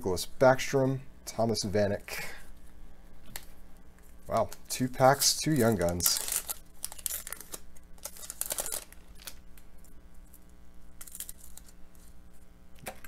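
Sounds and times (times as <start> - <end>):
faint steady hum: 0.0 - 13.0
cards rustling: 3.3 - 9.4, 11.0 - 12.2
foil wrapper crinkling and tearing: 3.3 - 12.2.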